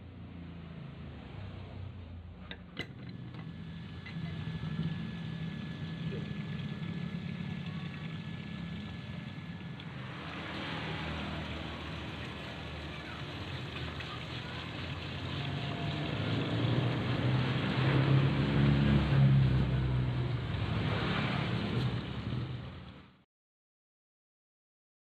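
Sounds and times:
water pump humming: 2.2s - 23.1s
water splashing into tub: 4.7s - 22.4s.

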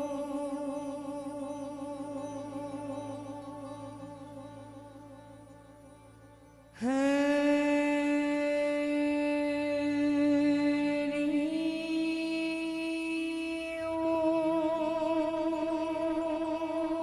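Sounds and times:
woman singing a long note: 6.8s - 17.0s.

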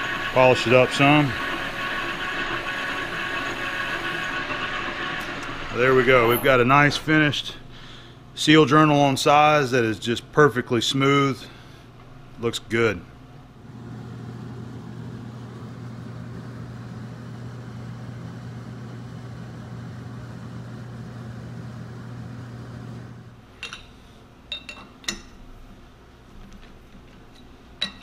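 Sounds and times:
metal lathe humming: 0.0s - 7.6s.

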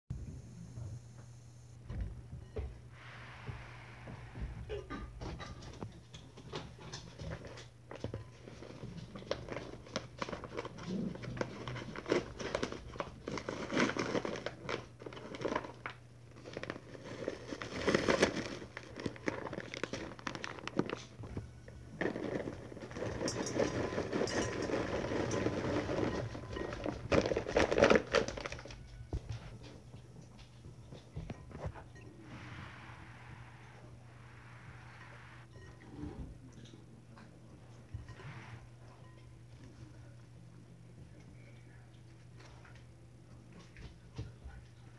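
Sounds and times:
paper bag crinkling and tearing: 11.8s - 21.1s, 22.0s - 28.7s.

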